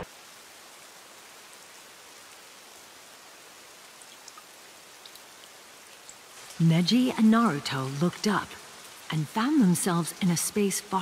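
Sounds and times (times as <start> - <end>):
faint steady rain: 0.0 - 11.0
light raindrop ticks: 3.8 - 10.3.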